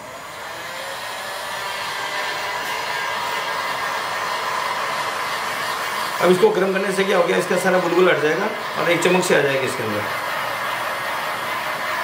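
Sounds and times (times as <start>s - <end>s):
heat gun fan blowing: 0.0s - 12.0s.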